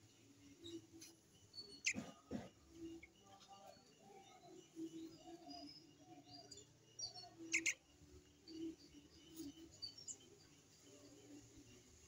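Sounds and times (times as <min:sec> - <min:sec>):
small birds chirping: 0:00.0 - 0:12.0
sharp high bird chirps: 0:07.1 - 0:07.8.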